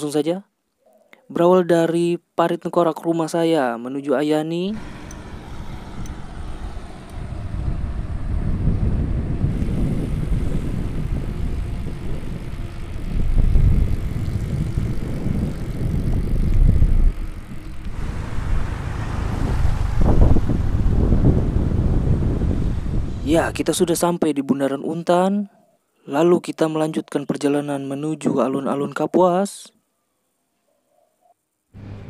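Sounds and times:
bicycle road rumble: 4.7 - 24.1, 31.8 - 32.0
wind on microphone: 4.8 - 24.1.

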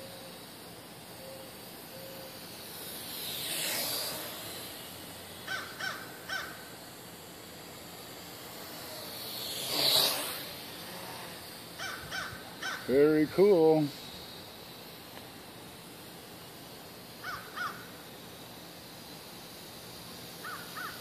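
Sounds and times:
quadcopter rotors whooshing past: 0.0 - 21.0
crow cawing: 5.4 - 6.6, 11.8 - 12.9, 17.2 - 17.9, 20.4 - 21.0.

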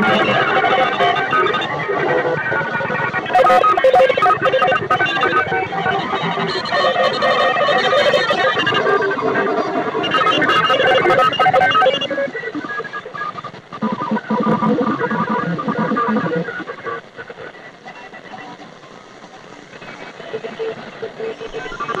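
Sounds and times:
broken radio tones: 0.0 - 22.0
radio static hiss: 0.0 - 22.0.

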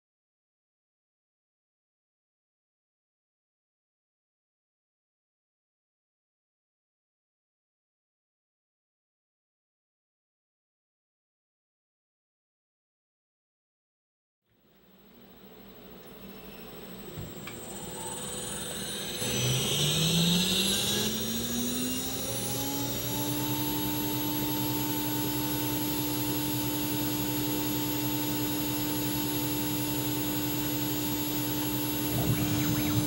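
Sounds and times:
router spindle whine: 14.8 - 33.0.

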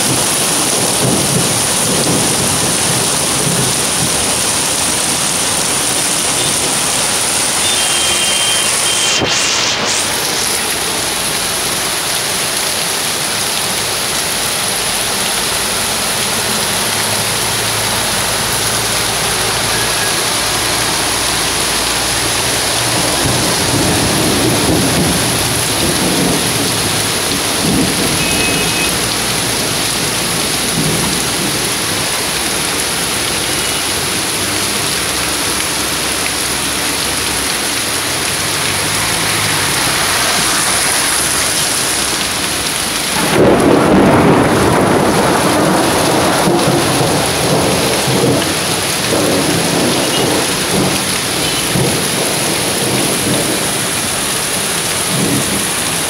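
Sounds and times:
torrential rain: 0.0 - 56.0.

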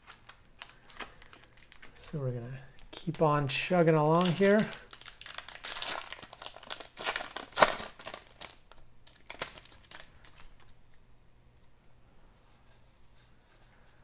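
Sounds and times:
wrapper crinkling and tearing: 0.0 - 10.7.

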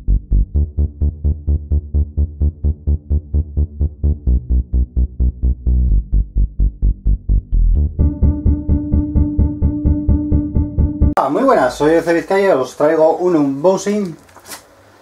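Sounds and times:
electronic dance music: 8.0 - 11.2.

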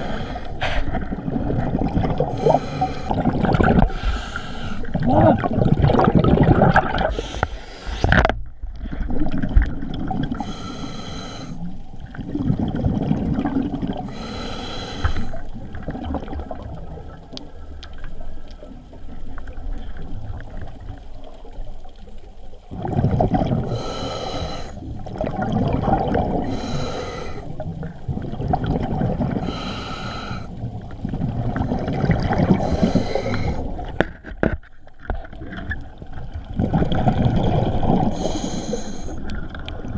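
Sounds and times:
regulator inhale hiss: 0.0 - 1.0, 2.3 - 3.2, 3.9 - 4.9, 7.1 - 8.2, 10.4 - 11.8, 14.1 - 15.5, 23.7 - 24.9, 26.4 - 27.6, 29.4 - 30.6, 32.6 - 33.8, 38.1 - 39.3
exhaled bubbles rushing: 0.7 - 4.2, 4.8 - 7.4, 8.1 - 10.4, 12.0 - 14.2, 15.4 - 17.4, 22.7 - 24.0, 24.8 - 26.8, 27.6 - 29.6, 30.6 - 34.0, 35.1 - 38.4.

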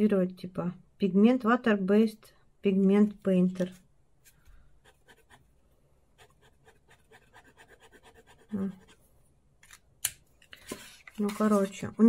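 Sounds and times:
marker scratching on paper: 4.8 - 5.5, 6.2 - 9.0.

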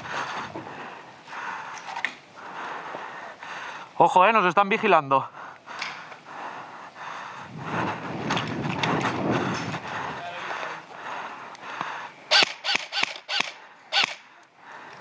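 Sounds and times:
airsoft rifle shots: 12.3 - 14.3.

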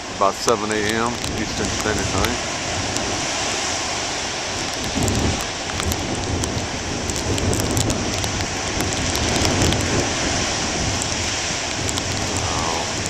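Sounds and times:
surf crashing on rocks: 0.0 - 13.0.

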